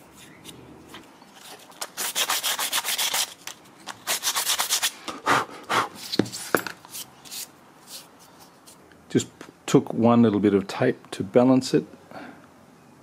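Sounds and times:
sandpaper scraping plastic: 0.2s - 5.0s.

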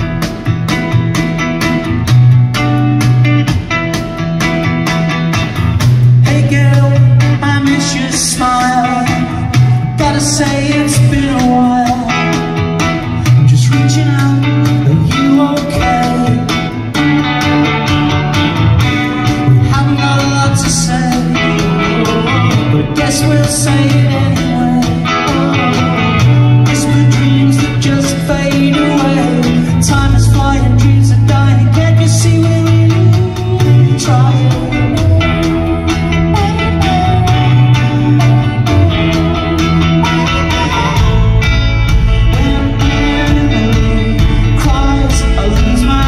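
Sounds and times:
bass line of held low notes: 0.0s - 46.0s
drums: 0.0s - 46.0s
electric guitars: 0.0s - 46.0s.

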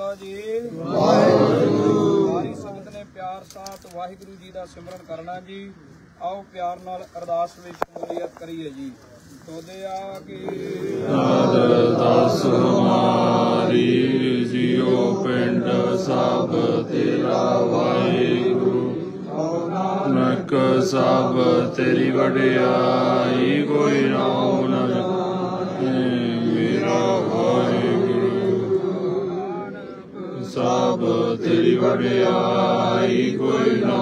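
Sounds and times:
group chanting in unison: 0.7s - 2.8s, 10.3s - 34.0s.

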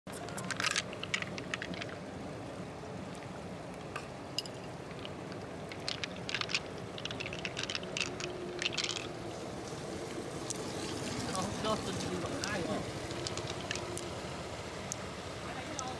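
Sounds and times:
pearls clicking against shell: 0.2s - 2.0s, 4.4s - 9.2s, 12.3s - 14.2s
wet squelches: 4.8s - 15.1s.

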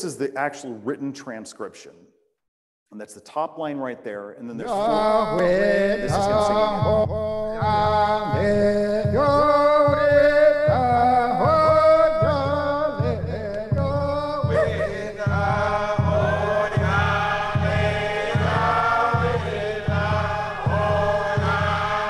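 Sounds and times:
man chanting: 3.7s - 22.0s
group of voices singing response: 4.6s - 22.0s
steady drum beat: 4.6s - 22.0s.

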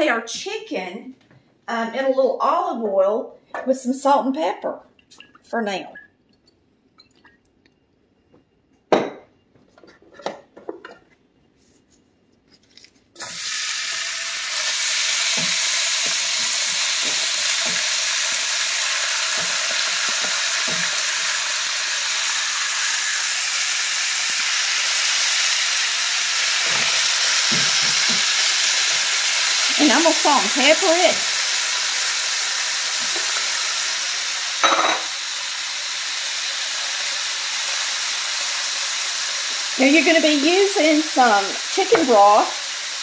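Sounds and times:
chicken sizzling in oil: 13.2s - 43.0s.

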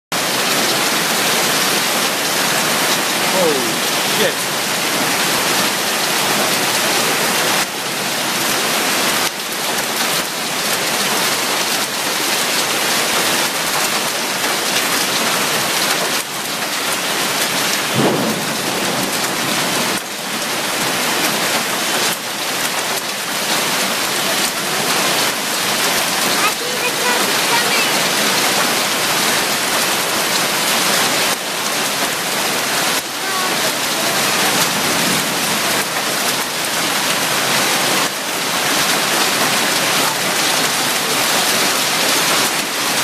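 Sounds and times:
hail and rain on pavement: 0.1s - 43.0s.

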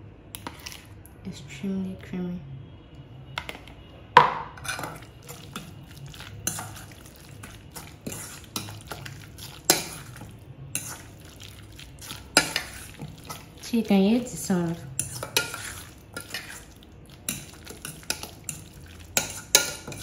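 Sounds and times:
fork clinking against metal bowl: 4.6s - 13.6s, 14.2s - 20.0s
wet sticky fork stirring: 4.6s - 20.0s.

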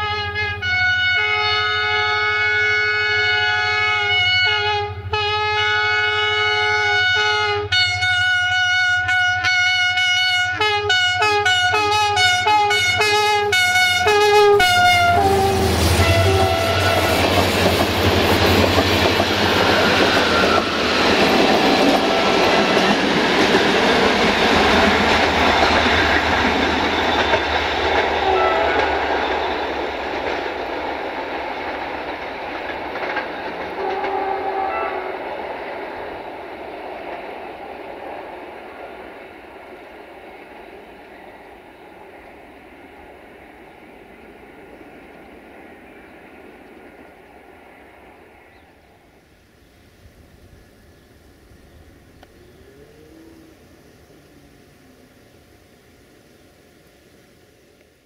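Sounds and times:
locomotive air horn blasts: 0.0s - 17.4s, 28.1s - 29.1s, 33.8s - 35.2s
train wheels on rails: 11.5s - 58.0s.

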